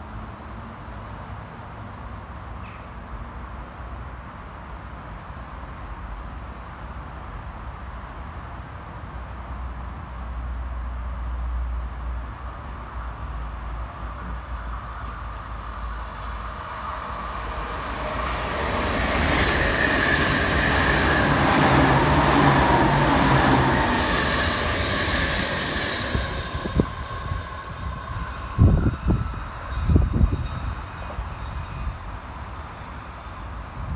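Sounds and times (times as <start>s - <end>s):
electric train passing at speed: 0.0s - 33.9s
wind buffeting the microphone: 17.1s - 32.3s.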